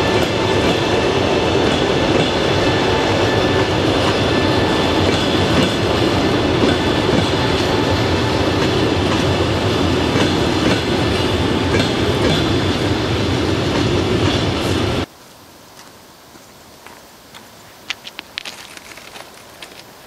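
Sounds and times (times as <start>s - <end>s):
train wheels rumbling: 0.0s - 15.1s
wheels clacking at rail joints: 3.9s - 13.0s.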